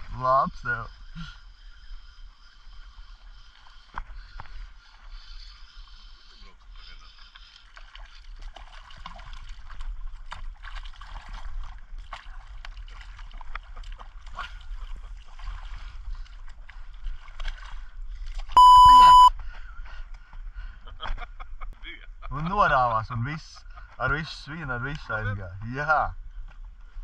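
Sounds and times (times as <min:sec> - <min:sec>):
water lapping around boat: 0:00.0 - 0:27.0
loud electronic beep: 0:18.6 - 0:19.3.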